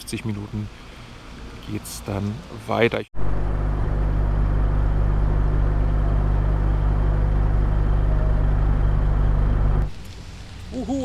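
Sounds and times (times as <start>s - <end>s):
wind and road noise rumble: 0.0s - 11.0s.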